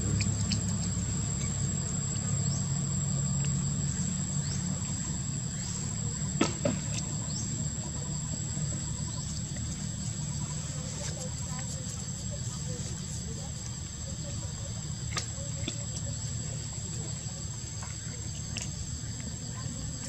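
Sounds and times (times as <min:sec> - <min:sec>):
high-pitched insect drone: 0:00.0 - 0:14.9.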